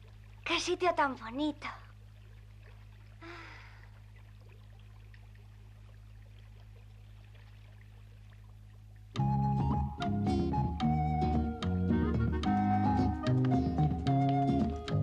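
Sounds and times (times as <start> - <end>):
water trickling: 0.0 - 11.7.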